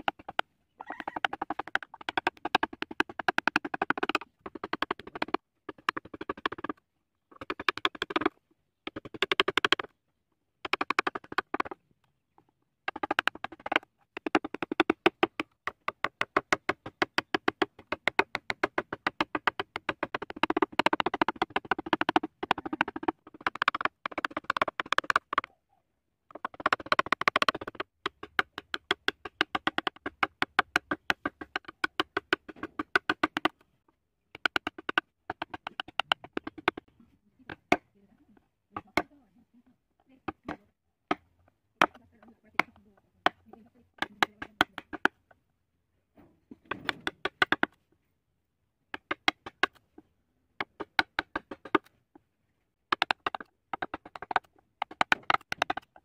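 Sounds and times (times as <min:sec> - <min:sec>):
chisel tapping wood: 0:00.0 - 0:00.4, 0:01.2 - 0:08.3, 0:12.9 - 0:25.5, 0:26.4 - 0:33.6, 0:34.3 - 0:36.9, 0:40.2 - 0:45.2, 0:46.6 - 0:47.7, 0:48.9 - 0:49.8, 0:52.9 - 0:56.0.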